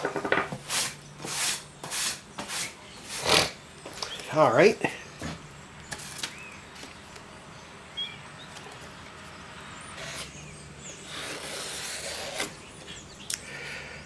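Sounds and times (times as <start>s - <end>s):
plywood scraping rustle: 0.0s - 4.4s, 5.2s - 7.3s, 10.0s - 13.0s.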